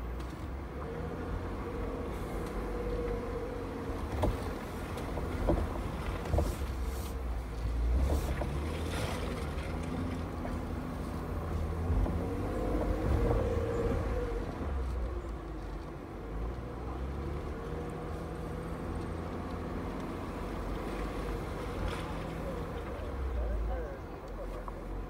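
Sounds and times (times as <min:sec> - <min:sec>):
tyres on rough dirt track: 0:00.0 - 0:25.0.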